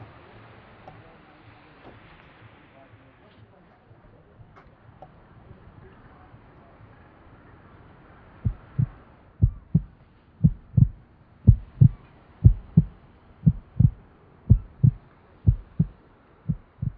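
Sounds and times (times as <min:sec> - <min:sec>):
slow heartbeat thuds: 0:08.5 - 0:16.9.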